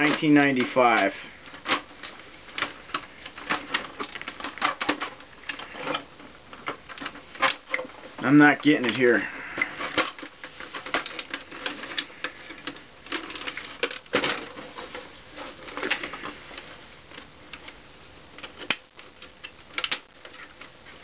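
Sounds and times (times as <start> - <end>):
plastic casing clicking and rattling: 1.0 - 8.0, 9.6 - 16.3, 18.4 - 20.7.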